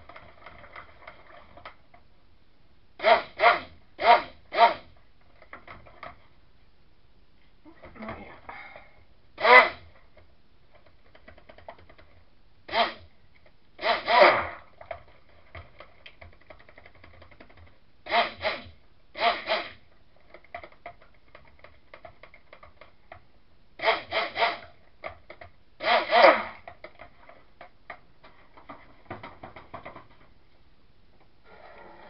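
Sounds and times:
stick blender bursts: 3.0s - 4.9s, 9.4s - 9.9s, 12.7s - 13.1s, 13.8s - 14.7s, 18.0s - 19.8s, 23.8s - 24.7s, 25.8s - 26.7s.

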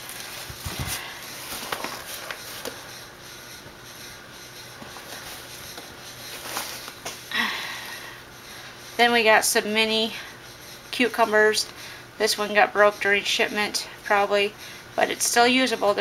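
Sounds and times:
paper bag rustling: 0.0s - 2.8s, 6.3s - 7.1s.

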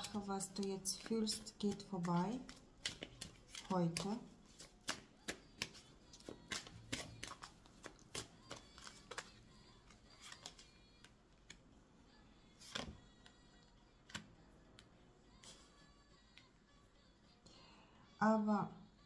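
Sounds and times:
cards shuffling: 0.0s - 11.6s, 12.6s - 13.0s
cards slapped on table: 2.5s - 9.3s.

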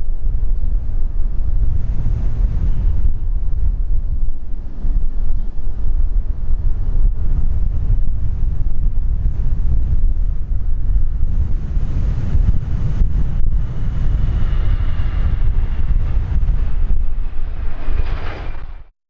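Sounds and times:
high engine whine: 0.0s - 18.9s
wind rumble on microphone: 0.0s - 18.9s
jet engines running: 7.1s - 18.9s.

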